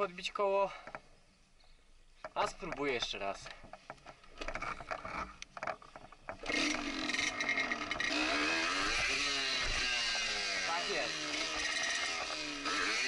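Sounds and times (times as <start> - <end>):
two-stroke motorcycle engine revving: 6.4 - 13.0.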